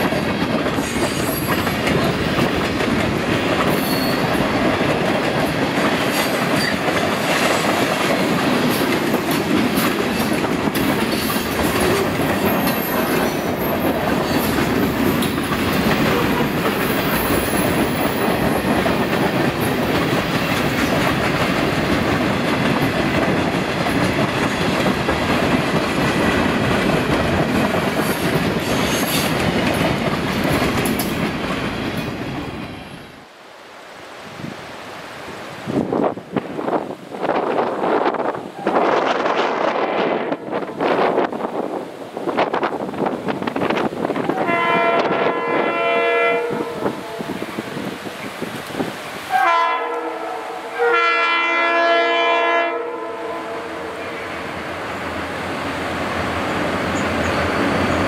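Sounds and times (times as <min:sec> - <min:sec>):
wheels clicking over rail joints: 0:00.0 - 0:32.7
train wheels rumbling on rails: 0:00.0 - 0:33.3, 0:35.6 - 0:58.0.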